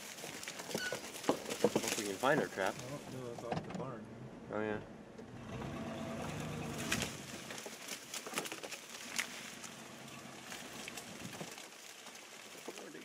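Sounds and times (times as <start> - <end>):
crackles and clicks: 0.0 - 3.5, 6.3 - 13.0
vehicle engine humming: 2.0 - 7.9, 9.0 - 11.6.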